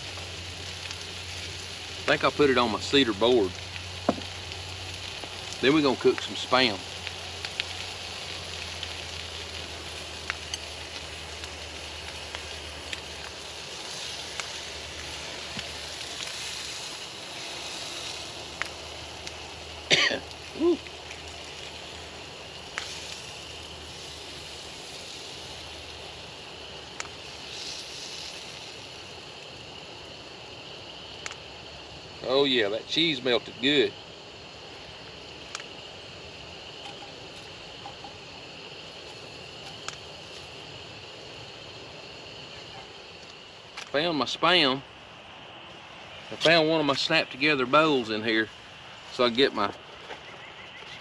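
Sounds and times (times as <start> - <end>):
steady hiss: 0.0 - 51.0
man coughing: 19.9 - 20.7.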